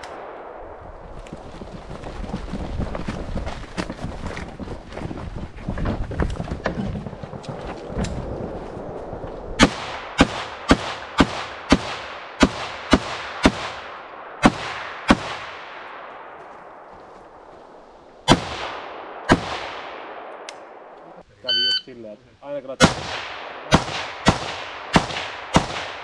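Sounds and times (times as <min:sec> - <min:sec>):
rifle shots with echo: 0:00.0 - 0:00.8, 0:09.6 - 0:16.9, 0:18.3 - 0:20.9, 0:22.8 - 0:26.0.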